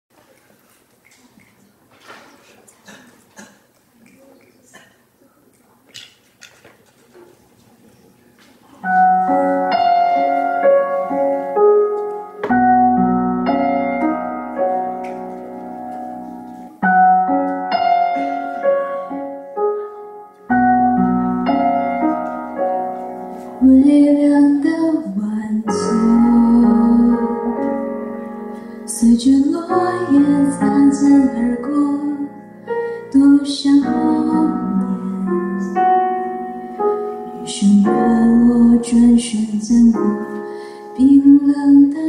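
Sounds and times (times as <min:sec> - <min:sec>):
piano ballad phrase: 0:08.8 - 0:42.0
woman singing: 0:23.6 - 0:27.8, 0:28.9 - 0:32.4, 0:33.1 - 0:35.8, 0:37.5 - 0:42.0.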